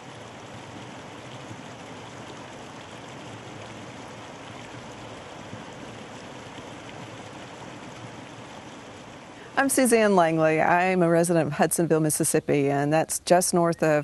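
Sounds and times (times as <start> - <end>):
stream rushing over rocks: 0.0 - 10.9.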